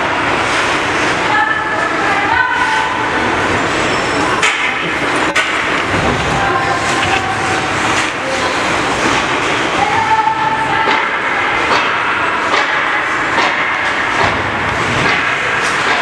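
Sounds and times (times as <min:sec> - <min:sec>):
crowd hubbub in ice arena: 0:00.0 - 0:16.0
sharp knocks: 0:10.8 - 0:16.0.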